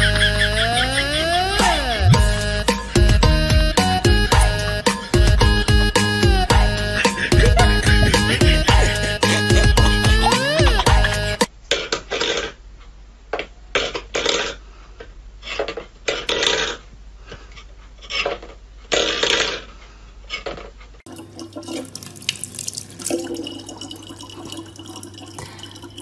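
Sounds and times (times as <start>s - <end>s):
steady low hum: 0.0s - 11.6s
tap water running into plastic bottle: 21.1s - 26.0s.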